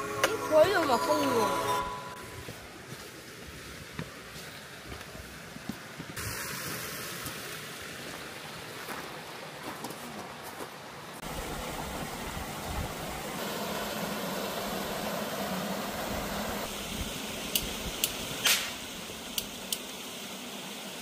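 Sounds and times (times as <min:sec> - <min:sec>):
stream flowing: 0:00.0 - 0:21.0.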